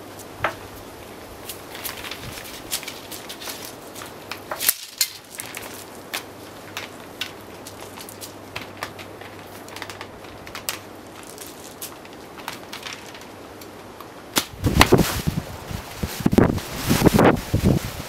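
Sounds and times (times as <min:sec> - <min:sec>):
arrows striking target: 0:14.3 - 0:15.0
wind buffeting microphone: 0:14.5 - 0:18.0.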